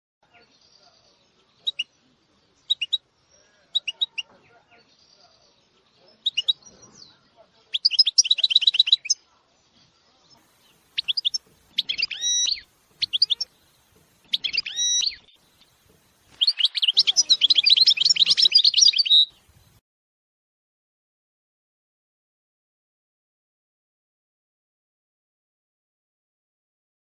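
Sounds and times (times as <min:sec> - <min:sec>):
finches singing trills: 0:10.3 - 0:19.8.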